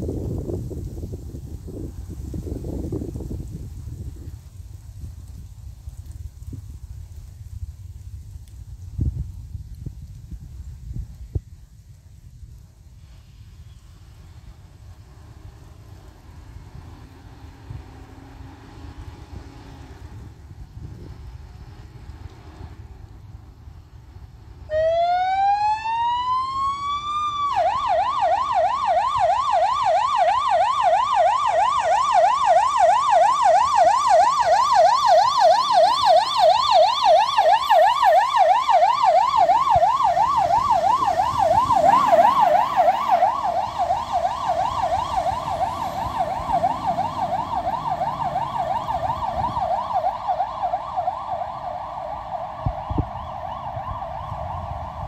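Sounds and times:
fire truck siren wailing and yelping: 0:14.1 - 0:55.0.

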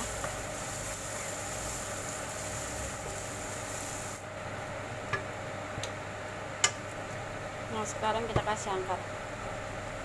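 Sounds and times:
garlic sizzling in oil: 0:00.0 - 0:04.6.

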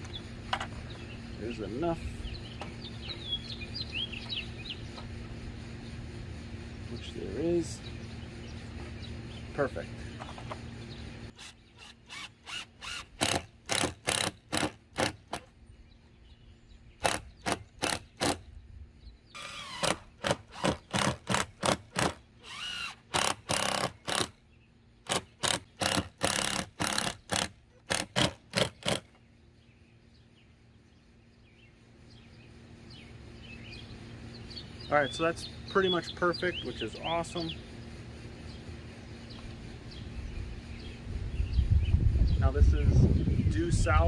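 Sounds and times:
cordless drill whirring: 0:11.4 - 0:15.2, 0:19.4 - 0:24.3.

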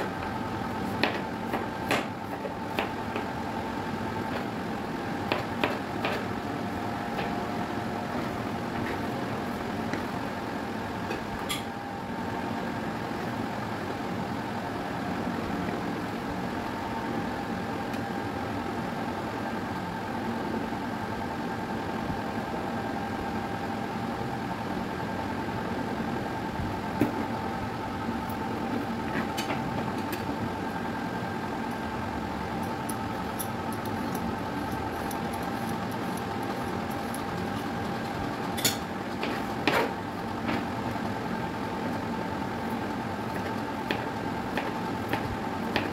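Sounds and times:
steady mechanical hum: 0:00.0 - 0:45.9.

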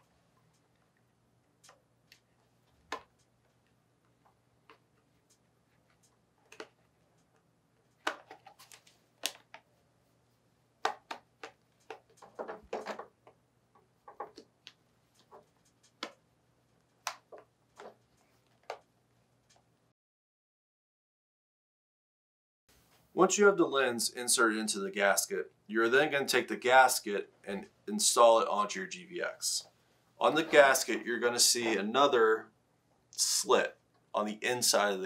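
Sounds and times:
rubber rubbing: 0:30.2 - 0:32.0.

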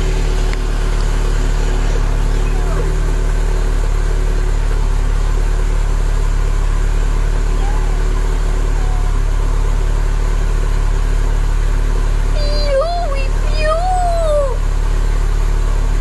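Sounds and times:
car engine running steadily: 0:00.0 - 0:16.0.

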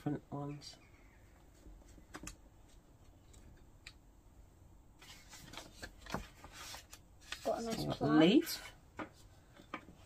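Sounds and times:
paper and card rustling: 0:05.0 - 0:09.9.

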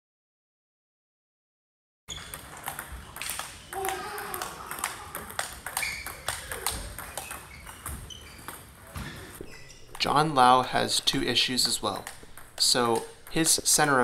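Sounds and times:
table tennis ball clicking: 0:02.2 - 0:08.6, 0:10.8 - 0:14.0.

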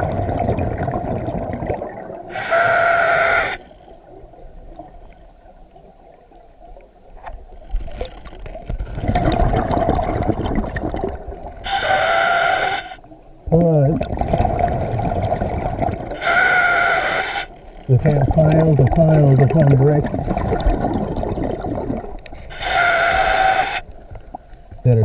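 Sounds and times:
gurgling exhaled bubbles: 0:00.0 - 0:03.6, 0:07.7 - 0:12.7, 0:13.7 - 0:25.0
hissing regulator inhale: 0:02.3 - 0:03.9, 0:11.7 - 0:13.0, 0:16.2 - 0:17.7, 0:22.4 - 0:23.9.

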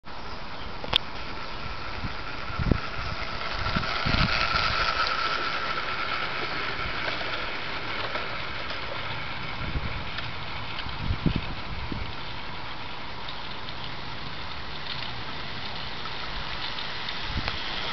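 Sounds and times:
model train running on track: 0:00.3 - 0:17.9.

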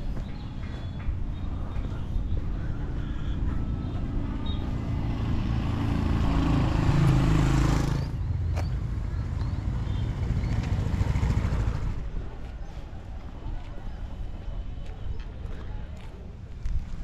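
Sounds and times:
vehicle passing by: 0:03.4 - 0:12.2.

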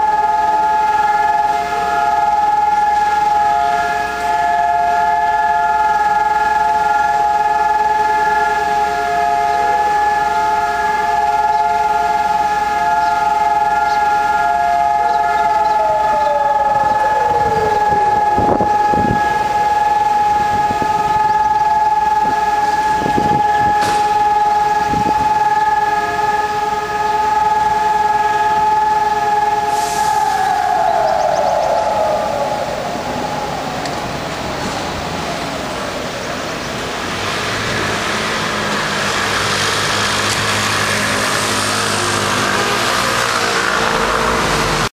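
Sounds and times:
sirens wailing: 0:00.0 - 0:44.9.

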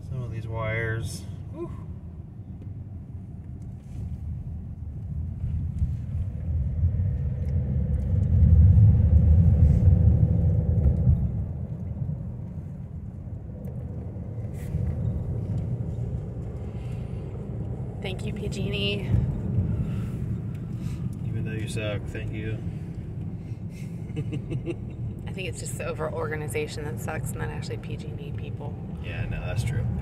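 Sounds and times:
car engine and road noise: 0:00.0 - 0:30.0.

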